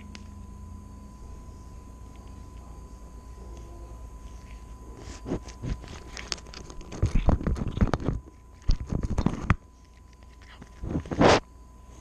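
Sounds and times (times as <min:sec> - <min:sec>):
cat crunching dry kibble: 0:04.3 - 0:11.5.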